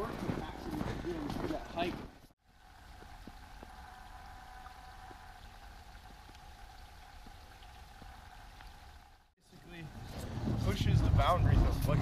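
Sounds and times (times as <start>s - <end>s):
faint water drips: 2.4s - 10.2s
creek water babbling: 2.4s - 10.9s.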